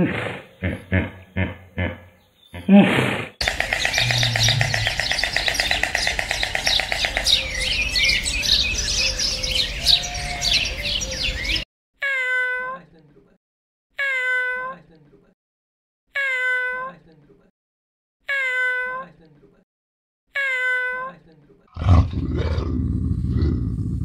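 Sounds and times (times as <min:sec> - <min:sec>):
chorus of high chirping calls: 0:03.4 - 0:11.6
cat meowing: 0:12.0 - 0:12.8, 0:14.0 - 0:14.7, 0:16.2 - 0:16.9, 0:18.3 - 0:19.0, 0:20.4 - 0:21.1.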